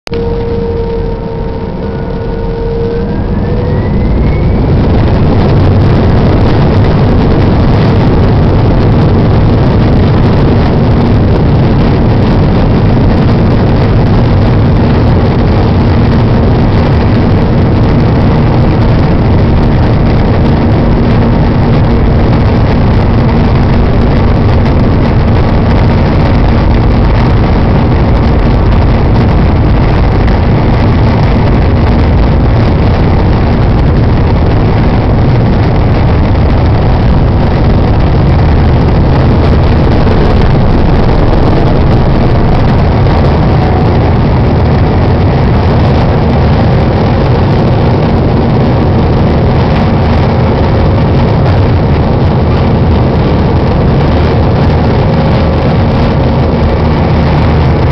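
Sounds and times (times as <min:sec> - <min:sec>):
jet engines roaring in cabin: 0:00.0 - 0:57.9.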